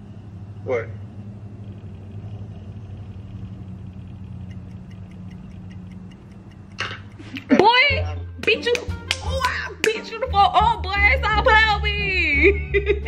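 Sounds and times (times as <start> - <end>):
low hum: 0.0 - 8.3
light ticks: 3.3 - 7.7.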